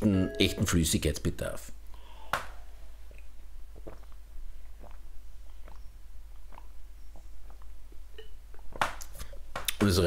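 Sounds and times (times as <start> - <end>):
person gulping juice: 3.1 - 9.5.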